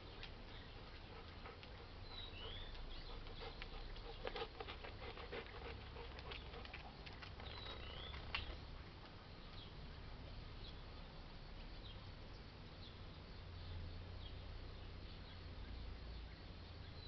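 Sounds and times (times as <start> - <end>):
bird chirping: 0.0 - 6.6, 7.3 - 17.0
dog paws on concrete: 0.0 - 9.8.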